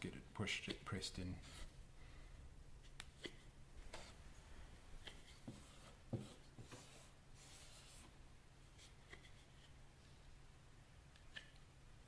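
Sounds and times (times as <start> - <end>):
spatula scraping clay: 0.6 - 1.8, 5.0 - 8.1.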